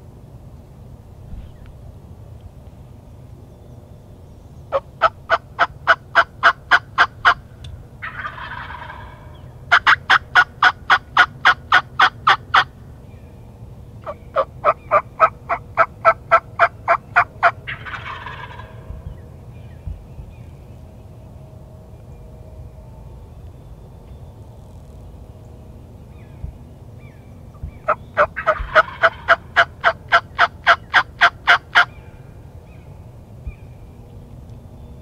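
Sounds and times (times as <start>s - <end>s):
turkey gobbling: 4.7s - 7.4s, 8.0s - 12.7s, 14.0s - 18.9s, 27.6s - 32.0s
turkey call hen yelps: 8.0s - 12.7s, 14.0s - 18.8s, 27.6s - 32.0s.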